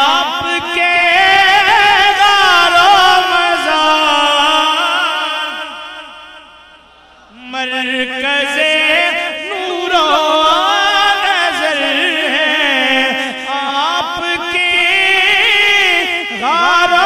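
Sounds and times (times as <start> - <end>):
person singing ornamented notes: 7.3 - 17.0.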